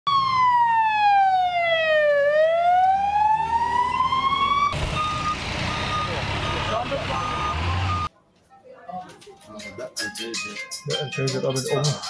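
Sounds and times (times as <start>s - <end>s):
ambulance siren wailing: 0.1s - 8.1s
street traffic: 2.2s - 8.1s.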